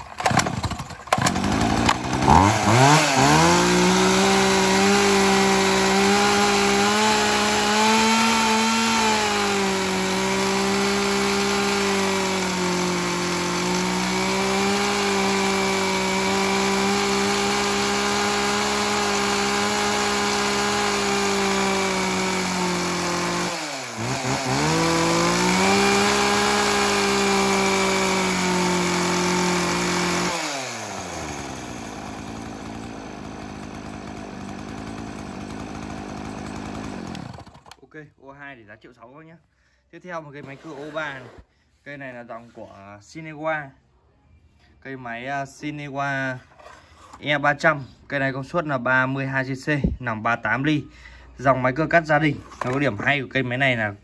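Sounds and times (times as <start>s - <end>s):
chainsaw starting and revving: 0.0s - 37.8s.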